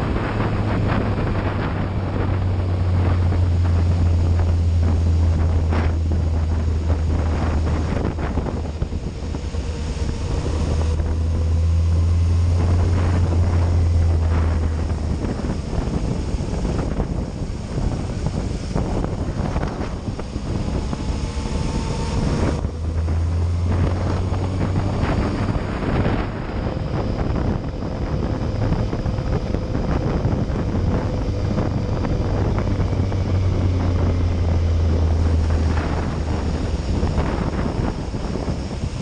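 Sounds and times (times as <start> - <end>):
motorcycle engine droning: 0.0 - 39.0
wind noise on microphone: 0.0 - 39.0.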